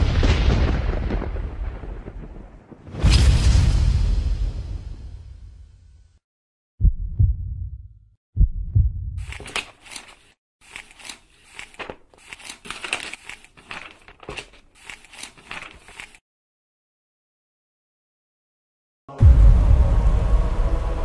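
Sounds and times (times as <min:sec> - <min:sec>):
crackling papery rustles and swishes: 0:09.2 - 0:16.2.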